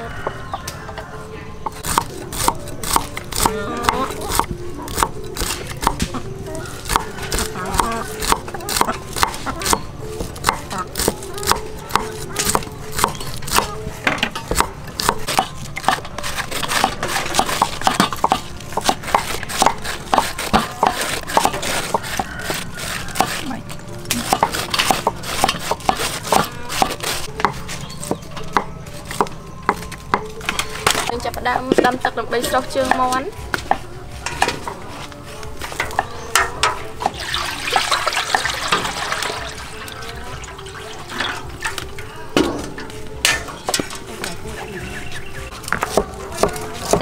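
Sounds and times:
cleavers chopping on wooden blocks: 1.6s - 6.2s, 6.8s - 32.0s, 32.8s - 34.8s, 45.5s - 47.0s
knives shaving cabbage: 1.7s - 34.1s, 43.8s - 47.0s.

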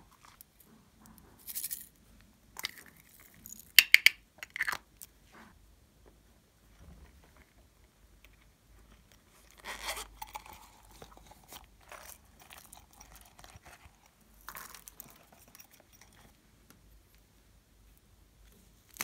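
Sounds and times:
silicone toy crackling when squeezed: 3.8s - 4.8s.

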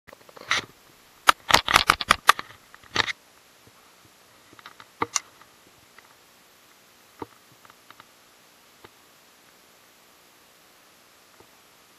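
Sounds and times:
handling clicks and scrapes: 0.1s - 3.2s, 4.4s - 6.1s.

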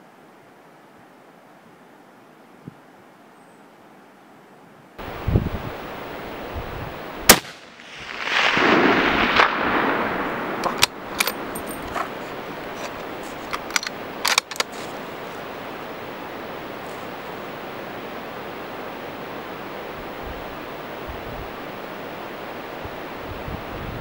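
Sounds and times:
rifle shot: 7.3s - 11.5s
rushing echo: 7.3s - 12.0s
sharp clicks: 12.8s - 14.8s.

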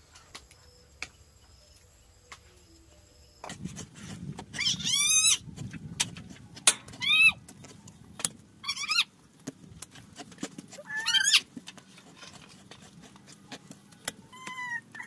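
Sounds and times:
animal high cries: 4.6s - 5.4s, 6.9s - 7.4s, 8.6s - 9.1s, 10.8s - 11.5s, 14.3s - 15.0s.

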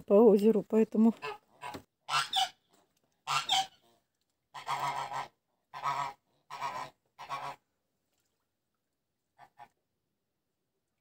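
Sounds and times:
geese honking: 1.2s - 2.6s, 3.2s - 3.9s, 4.5s - 7.6s.

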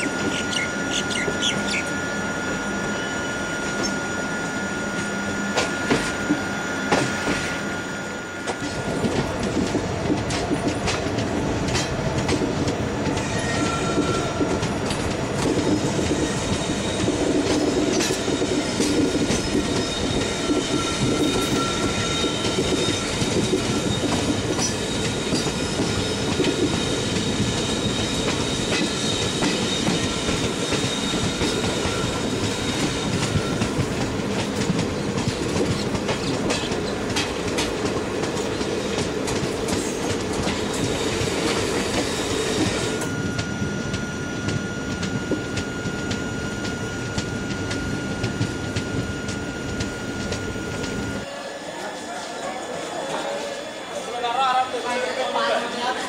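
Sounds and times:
high wheel squeal: 0.0s - 9.0s, 13.2s - 14.9s, 15.7s - 34.1s, 39.8s - 51.9s
train rumble: 0.0s - 51.3s
wheels clacking over rail joints: 8.5s - 42.9s.

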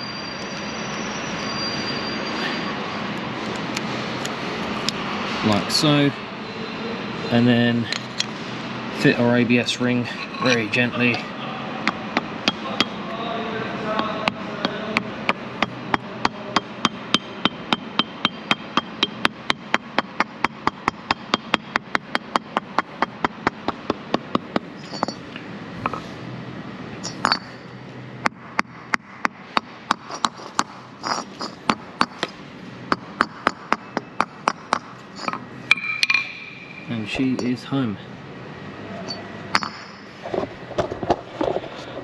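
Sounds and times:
hammer tapping metal ring: 14.0s - 25.3s, 27.0s - 27.6s, 28.2s - 37.6s, 39.1s - 40.1s.

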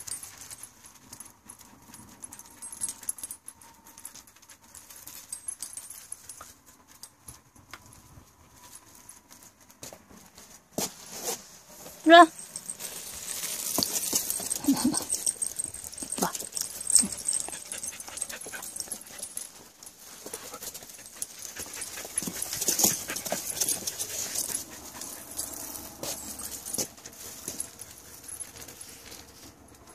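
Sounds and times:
rustling and clicks: 0.0s - 29.9s
dog panting: 14.4s - 19.5s, 20.2s - 25.6s.

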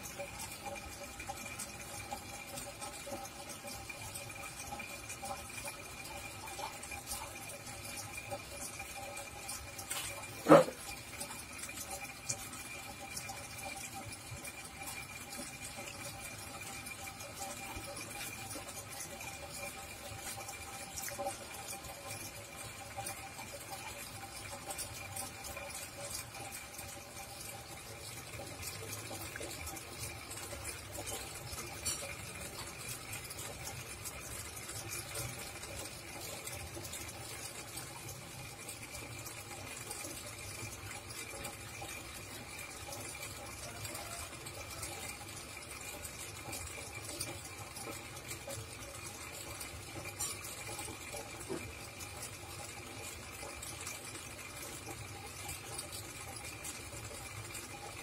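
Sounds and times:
aquarium water trickling and bubbling: 0.0s - 58.0s.

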